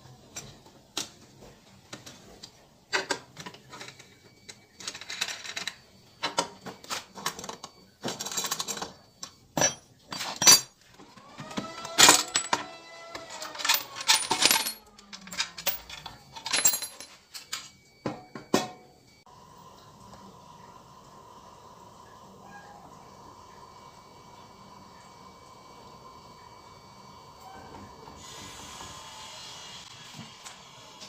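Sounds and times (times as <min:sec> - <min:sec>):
metal bolts clicking and clinking: 0:09.6 - 0:10.8, 0:11.9 - 0:17.7.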